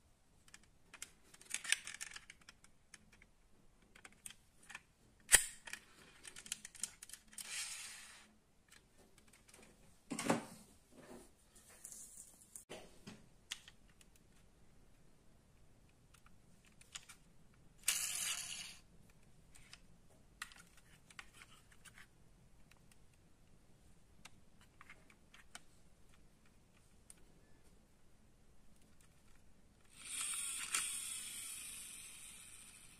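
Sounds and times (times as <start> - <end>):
plastic toy scrape: 7.3 - 8.3, 29.9 - 32.9.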